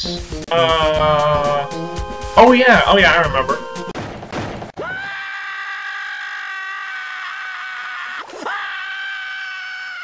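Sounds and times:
high-pitched human scream: 4.8 - 10.0.

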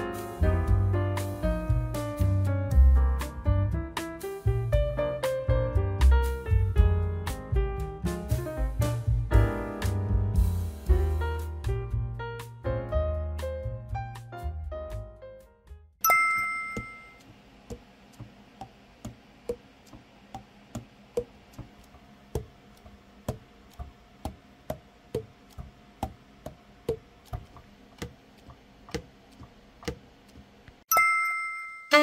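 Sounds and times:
bright chime: 16.0 - 17.2, 30.9 - 32.0.

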